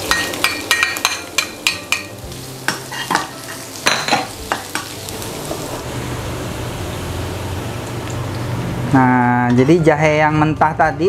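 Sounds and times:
ginger sizzling in hot oil: 0.0 - 9.2.

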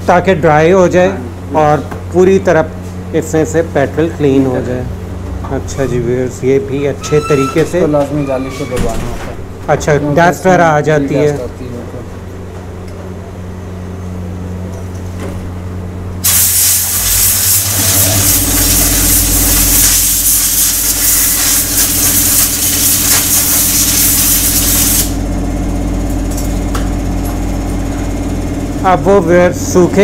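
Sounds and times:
steady low hum: 0.0 - 30.0
compressed air hissing: 16.2 - 25.2.

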